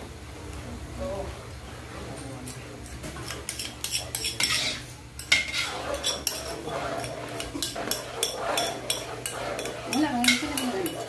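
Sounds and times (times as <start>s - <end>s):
metal spoon stirring in wok: 3.2s - 11.0s.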